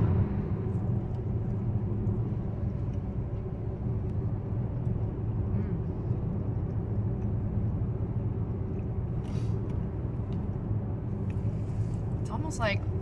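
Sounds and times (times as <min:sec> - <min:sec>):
car engine rumble inside cabin: 0:00.0 - 0:13.0.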